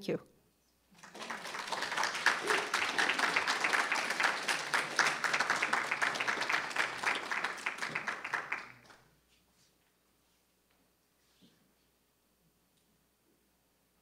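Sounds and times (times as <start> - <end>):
audience applauding: 1.0 - 9.0.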